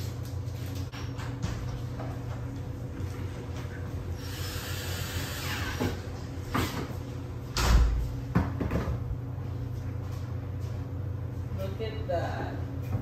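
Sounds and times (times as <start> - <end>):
cordless drill driving a screw: 4.2 - 5.8.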